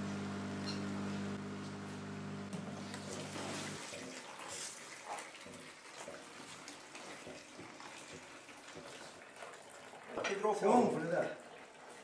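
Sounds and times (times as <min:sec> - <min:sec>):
steady machine hum: 0:00.0 - 0:03.4
liquid running and splashing: 0:02.3 - 0:12.0.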